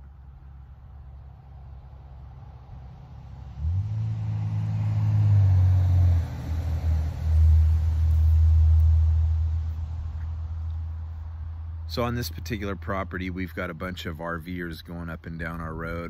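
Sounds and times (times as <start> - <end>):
vehicle engine driving past: 0.3 - 11.9.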